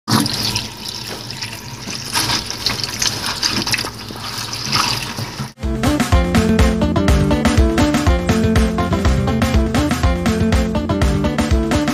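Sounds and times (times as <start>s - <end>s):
tap water running into bowl: 0.1s - 5.6s
music: 5.6s - 11.9s.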